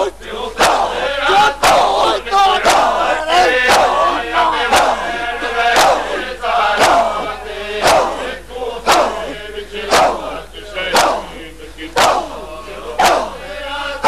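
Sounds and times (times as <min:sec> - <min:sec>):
men shouting and chanting: 0:00.0 - 0:14.0
hands slapping chests: 0:02.6 - 0:03.0, 0:04.7 - 0:05.0, 0:05.7 - 0:06.2, 0:06.8 - 0:07.1, 0:07.8 - 0:08.2, 0:08.9 - 0:09.2, 0:09.9 - 0:10.2, 0:11.0 - 0:11.3, 0:12.0 - 0:12.3, 0:13.0 - 0:13.3.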